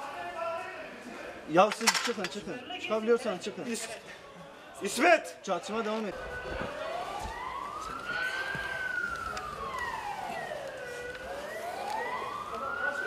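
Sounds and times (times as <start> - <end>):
siren wailing slowly: 6.1 - 13.0.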